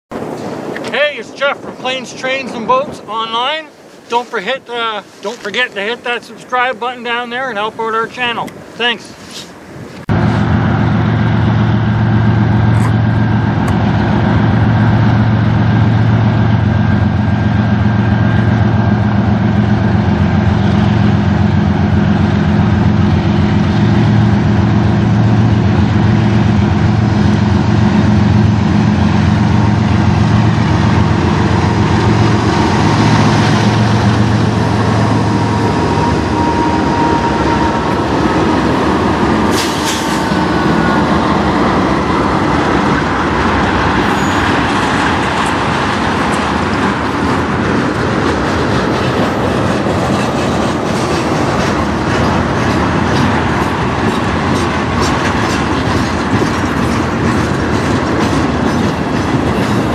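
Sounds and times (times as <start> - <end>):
wheels rumbling on rail: 0.1 - 59.9
locomotive engine drone: 9.6 - 59.9.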